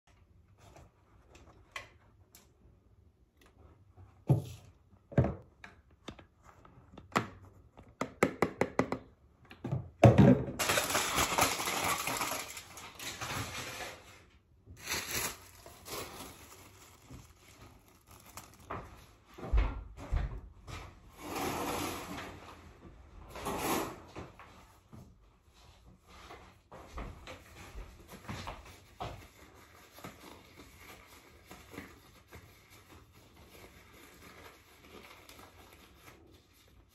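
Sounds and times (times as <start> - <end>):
foil and plastic crinkling: 10.6 - 19.2.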